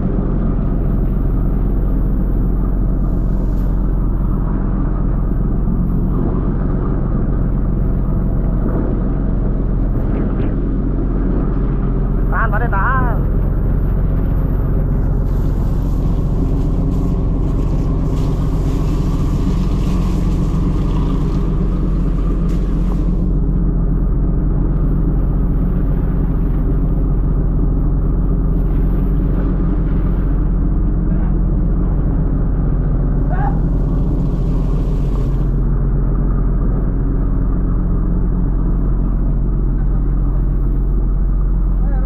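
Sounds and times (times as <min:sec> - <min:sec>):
boat engine rumble: 0:00.0 - 0:42.0
hose water splashing on steel deck: 0:00.2 - 0:06.3, 0:13.2 - 0:31.0, 0:31.9 - 0:35.8.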